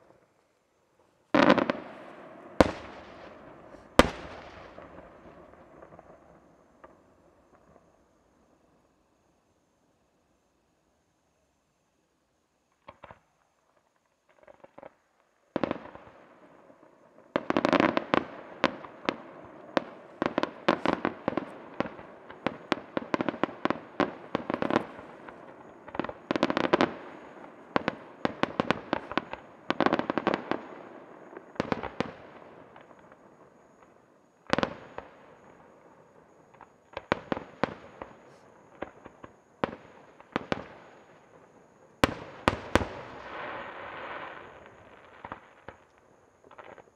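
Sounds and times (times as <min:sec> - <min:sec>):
fireworks bursting: 0:01.3 - 0:07.8, 0:17.3 - 0:46.9.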